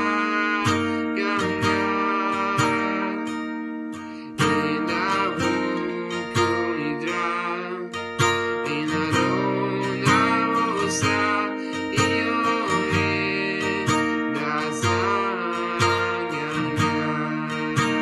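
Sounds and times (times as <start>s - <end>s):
acoustic guitar strumming: 0.0s - 18.0s
man singing: 0.0s - 18.0s.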